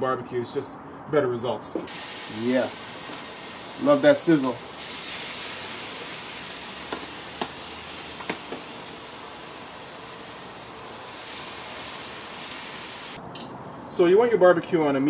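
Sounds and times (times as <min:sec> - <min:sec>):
steaks sizzling on grill: 0:01.9 - 0:13.2
metal tongs clicking: 0:13.3 - 0:13.6.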